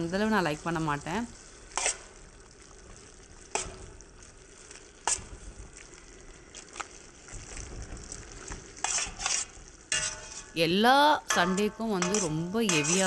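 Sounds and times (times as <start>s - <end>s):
spinach sizzling in a pan: 0.0s - 13.0s
metal spatula scraping a pan: 1.5s - 2.3s, 3.4s - 5.5s, 8.1s - 13.0s.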